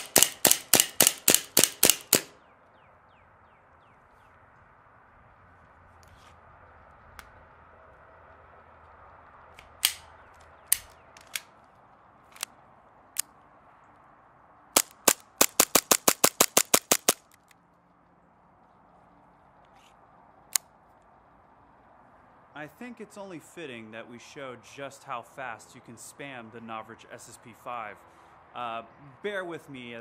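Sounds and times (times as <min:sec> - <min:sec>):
airsoft pistol shots: 0:00.0 - 0:02.4, 0:14.8 - 0:17.2.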